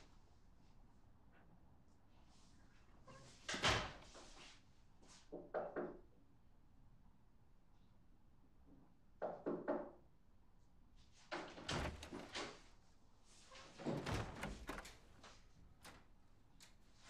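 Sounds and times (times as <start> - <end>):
door knocking and rattling: 11.4 - 12.6, 13.8 - 16.0
door latch clicks: 13.8 - 15.2.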